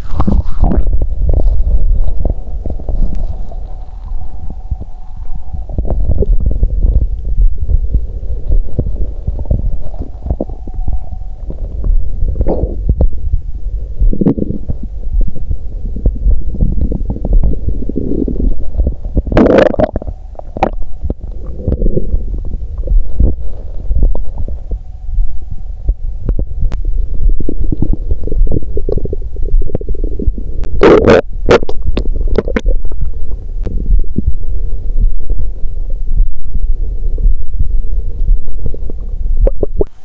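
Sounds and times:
stomach gurgling: 0.0s - 40.0s.

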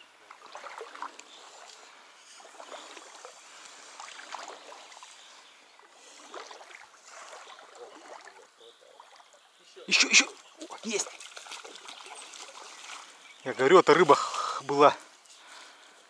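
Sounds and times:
river water sloshing and splashing: 0.0s - 15.9s.

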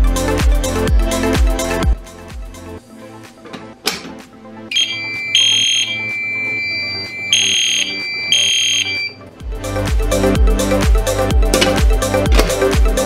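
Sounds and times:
electronic music with heavy beat: 0.0s - 13.0s
fire alarm tone: 4.7s - 9.2s.

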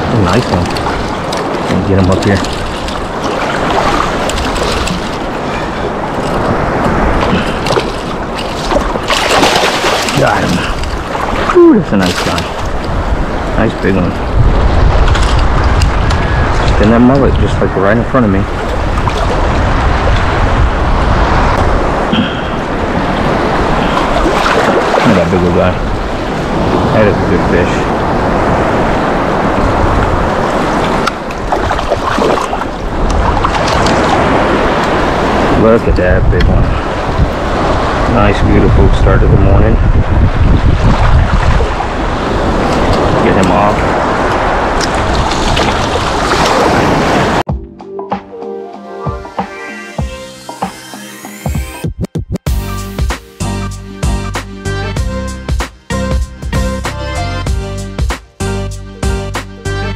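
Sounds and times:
surf water washing: 0.0s - 47.5s
wind buffeting microphone: 0.0s - 47.5s
fish splashing at surface: 7.2s - 12.8s.

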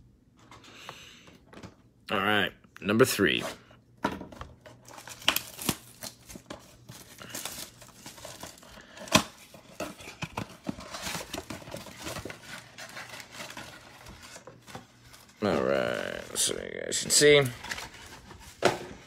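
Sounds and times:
plastic wrap crinkling and tearing: 4.8s - 18.6s.

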